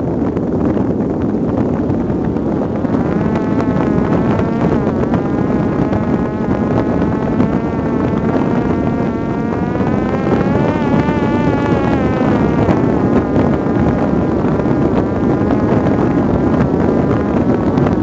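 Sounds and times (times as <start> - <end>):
wind rush on microphone: 0.0 - 18.0
drone motor whining: 2.1 - 16.0.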